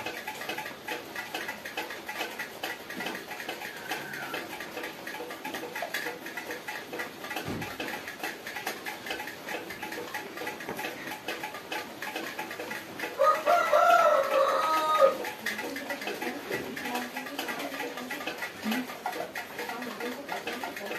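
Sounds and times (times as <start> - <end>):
rooster crowing: 3.6 - 4.5, 13.2 - 15.3.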